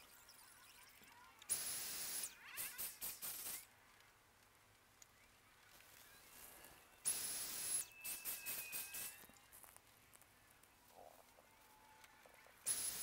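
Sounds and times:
paint sprayer motor whine and hiss: 1.5 - 3.6, 7.1 - 9.2, 12.6 - 13.0.

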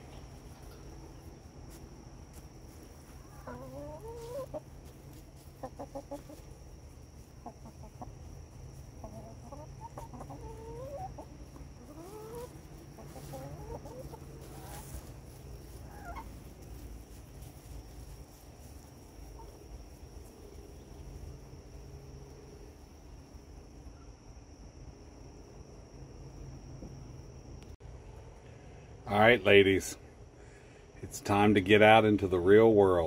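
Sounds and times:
hens calling softly: 0.0 - 22.7
faint low hum: 0.0 - 33.0.

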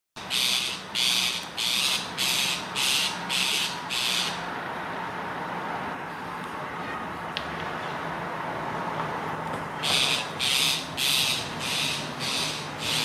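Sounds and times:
parakeet screeching: 0.2 - 4.4, 9.8 - 13.0.

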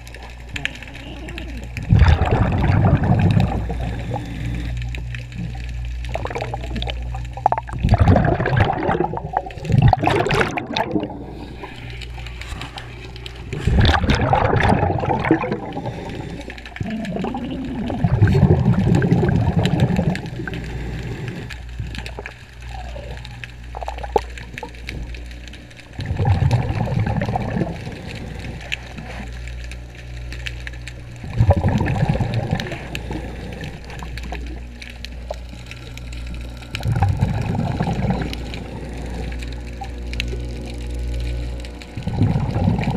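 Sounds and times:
exhaled bubbles gurgling underwater: 0.0 - 42.9
steady low hum: 0.0 - 42.9.

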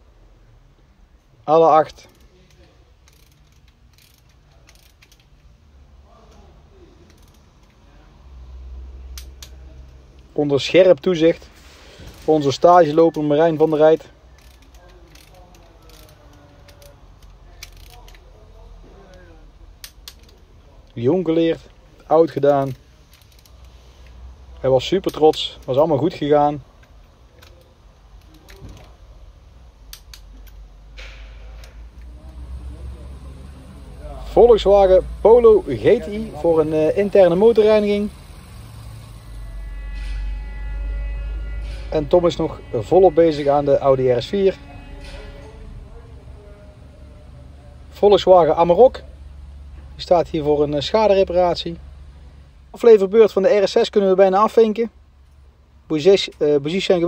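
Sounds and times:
low workshop hum: 0.0 - 57.0
hand ratchet clicking: 2.0 - 5.5, 7.0 - 7.8, 12.9 - 18.3, 19.8 - 20.4, 22.2 - 24.2, 29.9 - 30.7
hand tool clicks and taps: 29.9 - 30.6.

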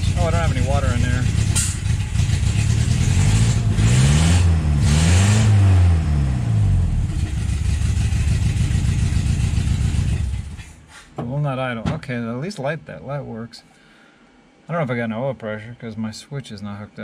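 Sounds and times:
car engine revving and idling: 0.0 - 10.8.

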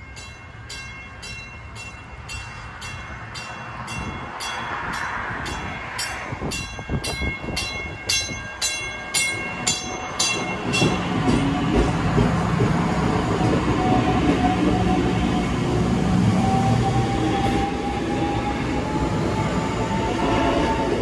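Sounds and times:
station bell ringing: 0.0 - 21.0
train wheels rumbling: 0.0 - 21.0
train motors humming: 5.0 - 21.0.

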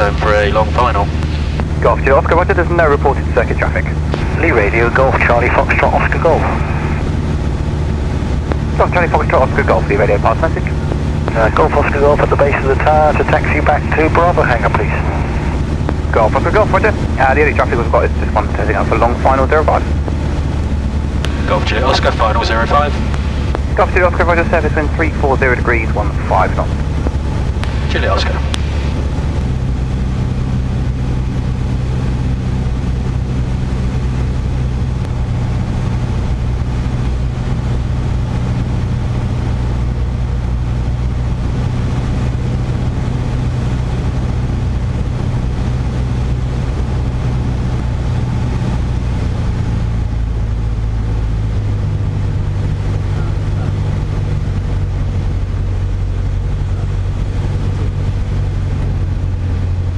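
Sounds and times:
propeller plane engine droning: 0.0 - 59.9.

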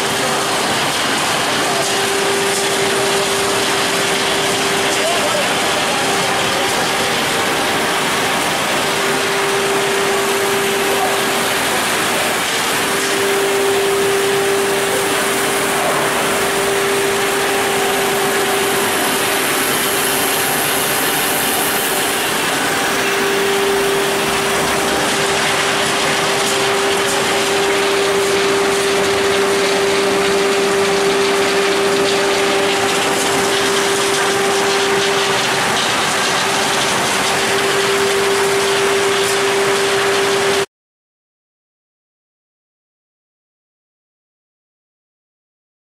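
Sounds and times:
loud steady machine noise: 0.0 - 40.7
humming tone: 8.8 - 40.6.

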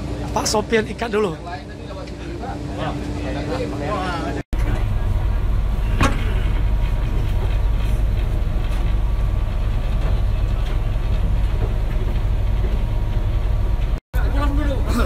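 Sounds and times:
ferry engine drone: 0.0 - 15.0.

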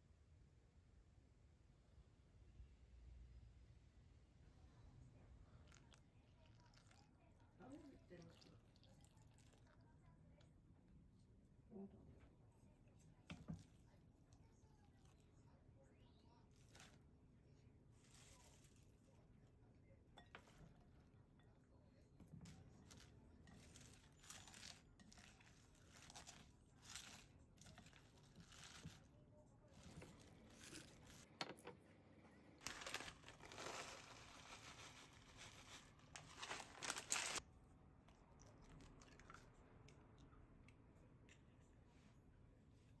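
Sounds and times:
shredded cabbage rustling in bowl: 18.0 - 19.0, 22.8 - 29.1, 29.7 - 31.3, 32.6 - 37.4.

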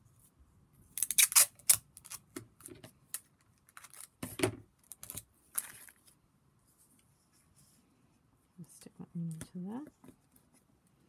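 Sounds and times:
sticky tape clicking and crackling: 1.0 - 2.2.

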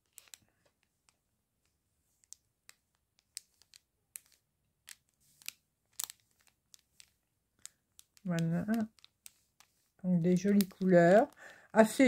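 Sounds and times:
plastic bag crinkling: 5.3 - 12.0.

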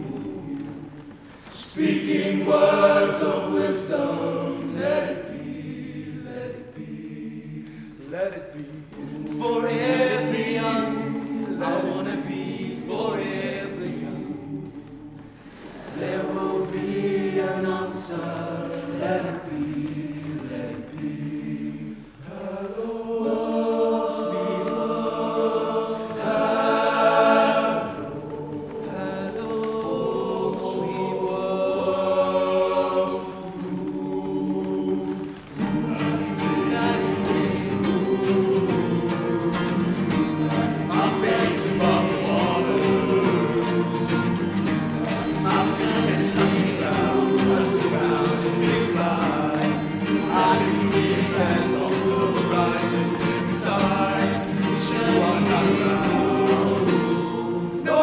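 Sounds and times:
men singing in harmony: 0.0 - 58.0
strummed acoustic guitars: 23.6 - 58.0.

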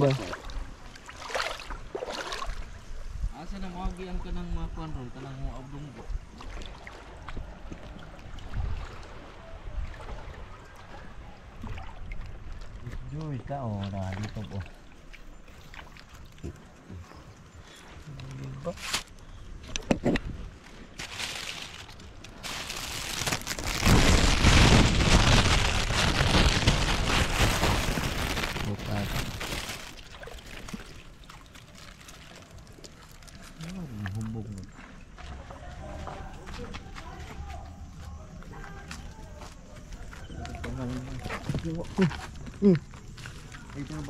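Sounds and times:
shallow water sloshing: 0.0 - 3.2, 6.0 - 36.6
small splashes and clicks: 0.1 - 2.7, 6.4 - 23.7, 28.2 - 37.3
plastic bag crinkling: 21.0 - 33.6.

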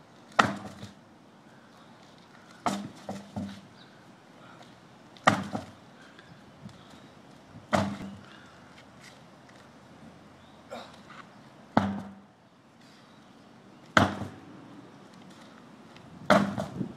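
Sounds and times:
tire bouncing knocks: 0.3 - 1.0, 2.6 - 3.7, 5.2 - 5.8, 7.6 - 8.3, 11.7 - 12.3, 13.8 - 14.5, 16.2 - 16.9
tractor tire thudding on concrete: 0.3 - 1.0, 2.6 - 3.7, 5.2 - 5.8, 7.7 - 8.2, 11.7 - 12.3, 13.9 - 14.4, 16.2 - 16.9.

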